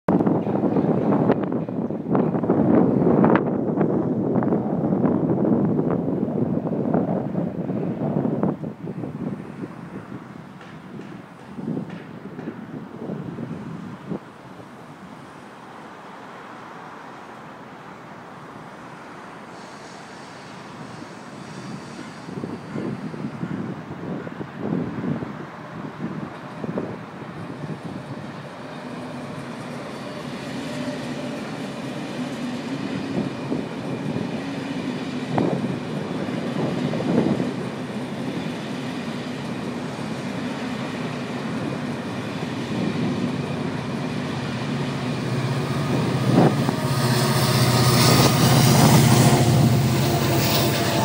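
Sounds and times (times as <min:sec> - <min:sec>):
sharp train clanks: 0:00.1 - 0:03.6, 0:10.1 - 0:13.2, 0:19.4 - 0:24.7, 0:26.1 - 0:51.0
train wheels on rails: 0:00.1 - 0:51.0.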